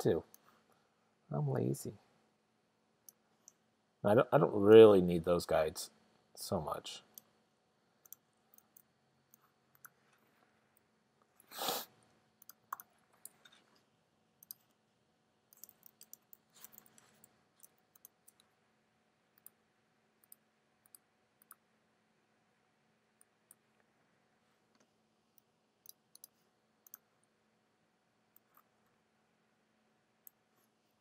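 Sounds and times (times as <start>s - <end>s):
computer mouse clicks: 8.0s - 10.8s, 12.4s - 13.6s, 14.4s - 14.8s, 15.5s - 18.5s, 19.4s - 19.6s, 20.2s - 21.6s, 24.8s - 27.1s.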